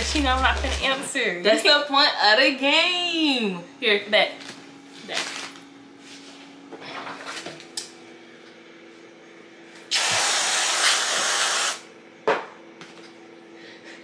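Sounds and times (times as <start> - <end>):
aerosol can spraying hiss: 9.9 - 11.8.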